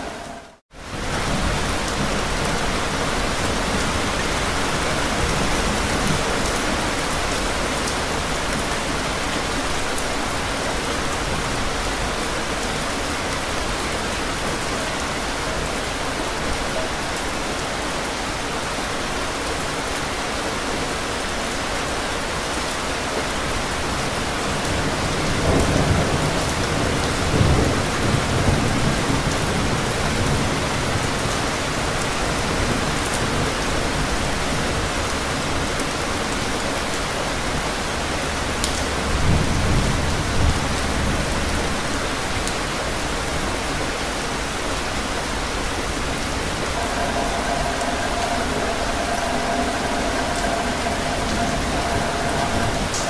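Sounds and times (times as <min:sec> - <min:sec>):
rain on hard surfaces: 0:00.0 - 0:53.0
thunder rumbling: 0:45.2 - 0:53.0.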